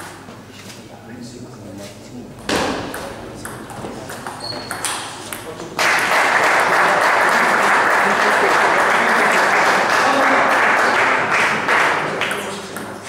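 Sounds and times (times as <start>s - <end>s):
spectators clapping: 5.7s - 12.7s.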